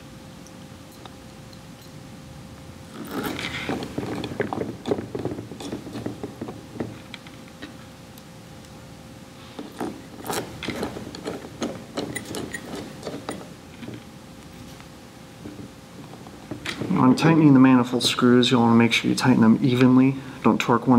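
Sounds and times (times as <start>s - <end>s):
faint steady hum: 0.0s - 20.9s
screwdriver clicks and metal scrapes: 9.6s - 13.5s.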